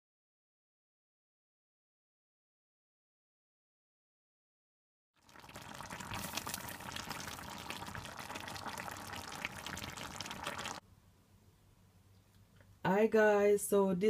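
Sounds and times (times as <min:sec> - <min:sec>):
stew bubbling and crackling: 0:05.2 - 0:10.8.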